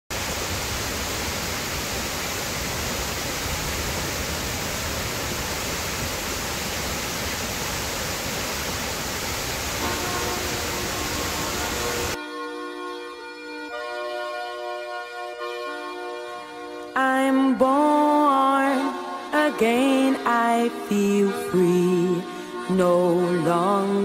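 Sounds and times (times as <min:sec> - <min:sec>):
waterfall rushing: 0:00.1 - 0:12.2.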